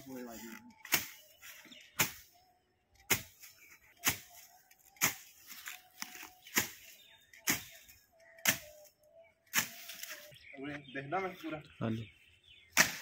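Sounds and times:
blade swishing through weeds: 0:00.8 - 0:02.4, 0:03.1 - 0:08.8, 0:09.5 - 0:10.3.

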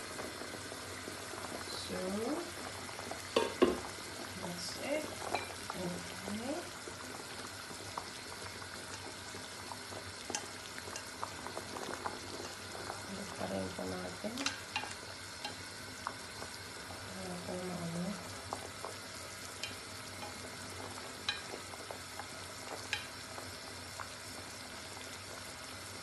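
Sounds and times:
water boiling in a pot: 0:00.0 - 0:26.0
tongs clicking against pot: 0:14.4 - 0:15.7, 0:19.6 - 0:20.4, 0:21.2 - 0:21.6.

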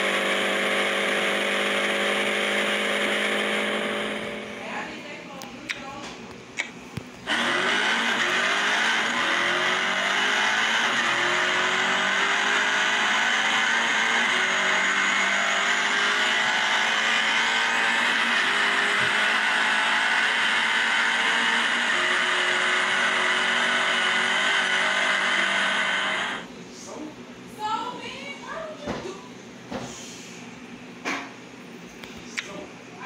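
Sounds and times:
simulated engine accelerating: 0:00.0 - 0:05.0, 0:07.2 - 0:26.5.

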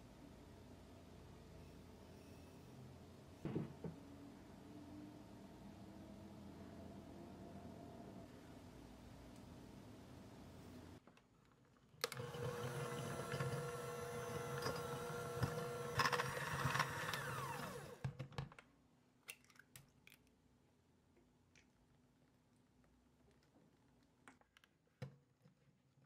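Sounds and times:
electric mixer whine: 0:12.0 - 0:18.1.

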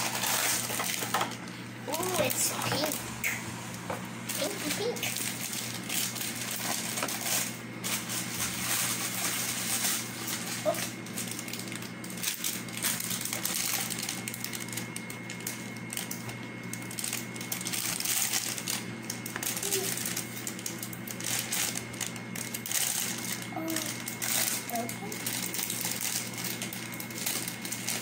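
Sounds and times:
plastic bag crinkling: 0:00.0 - 0:03.3, 0:04.1 - 0:28.0
steady low hum: 0:00.0 - 0:28.0.

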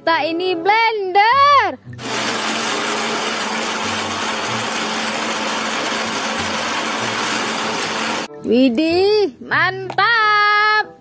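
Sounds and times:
blender whirring: 0:02.0 - 0:08.3.

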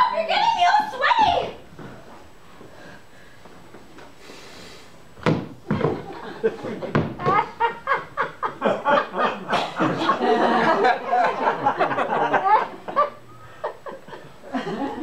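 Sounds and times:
audience laughing: 0:05.8 - 0:15.0.

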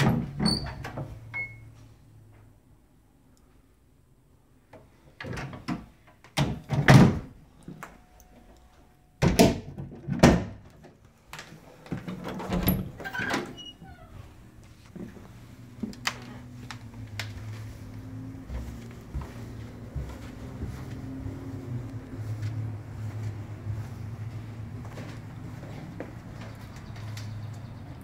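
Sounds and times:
wooden doors knocking and thudding: 0:00.0 - 0:01.2, 0:05.2 - 0:07.4, 0:09.2 - 0:11.0, 0:11.9 - 0:13.7.

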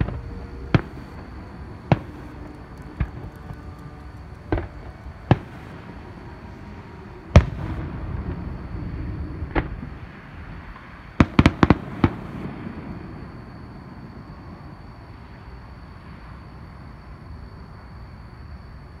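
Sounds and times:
low rumble: 0:00.0 - 0:11.2.

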